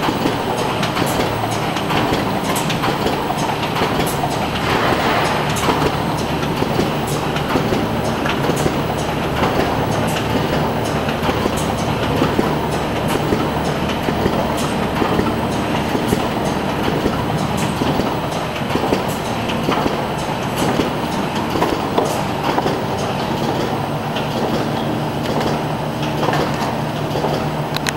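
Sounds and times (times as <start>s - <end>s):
machine clattering with quick clicks: 0.0s - 27.9s
machine hum: 0.0s - 27.9s.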